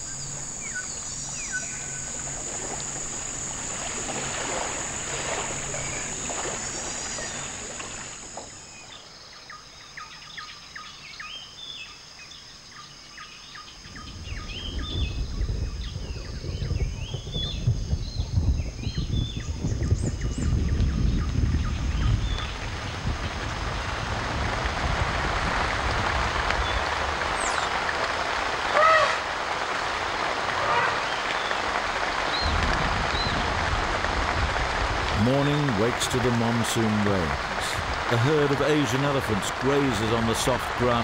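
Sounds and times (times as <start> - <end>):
birds chirping: 0.0 - 11.8, 26.6 - 27.9, 29.8 - 33.6, 35.2 - 41.0
night insects buzzing: 0.0 - 41.0
low rumbling noise: 13.9 - 41.0.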